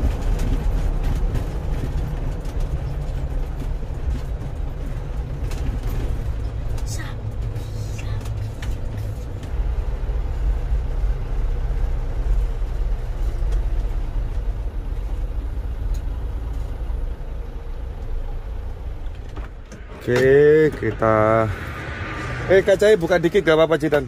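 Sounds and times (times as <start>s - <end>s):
engine low steady rumble: 0.0s - 24.0s.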